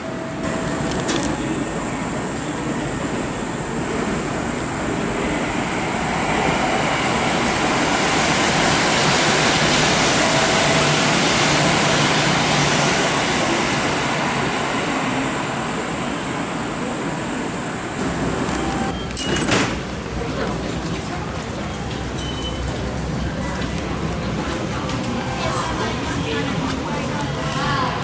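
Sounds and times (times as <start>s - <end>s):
electric train passing: 0.0s - 19.0s.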